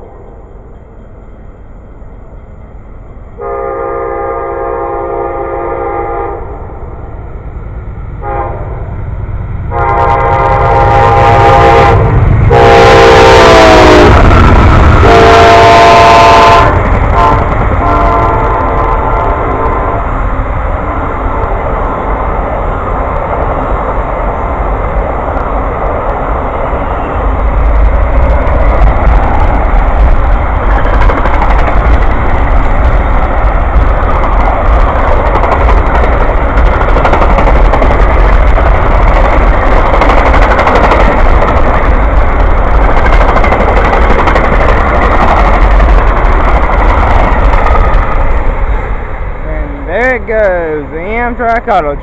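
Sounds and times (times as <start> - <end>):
train passing: 0.0 - 52.0
train horn blast: 3.4 - 6.7, 8.2 - 8.9, 9.7 - 14.3, 15.0 - 20.2.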